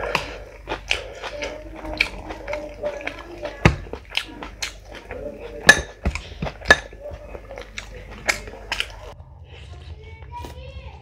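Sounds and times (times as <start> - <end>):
dishes clinking: 2.8 - 8.8.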